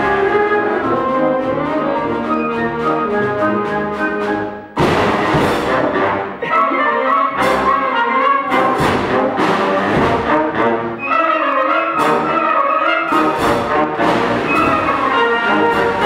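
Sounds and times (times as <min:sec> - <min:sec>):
concert band playing a march: 0:00.0 - 0:16.0
percussion strikes: 0:04.8 - 0:06.5, 0:08.5 - 0:10.6.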